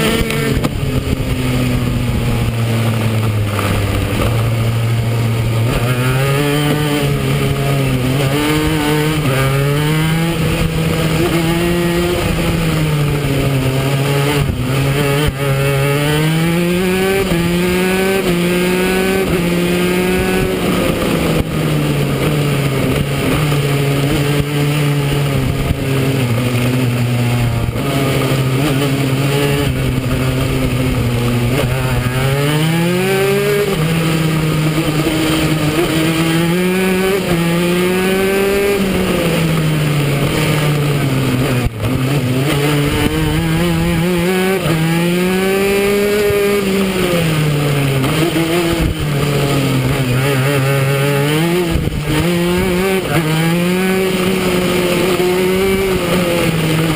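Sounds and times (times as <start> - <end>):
racing kart engine: 0.0 - 56.9.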